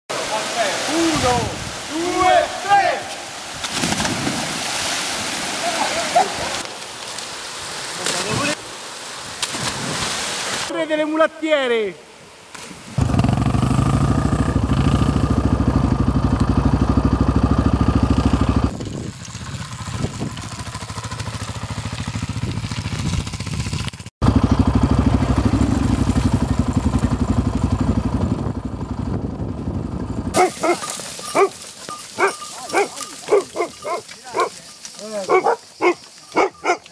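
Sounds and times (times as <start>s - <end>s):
dirt bike engine running: 13.0s - 34.5s.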